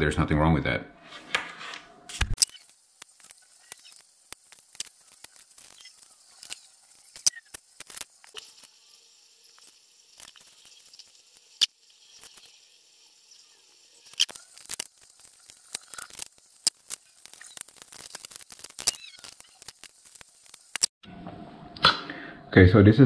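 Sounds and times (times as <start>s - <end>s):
wires clicking and rustling: 2.1s - 21.0s.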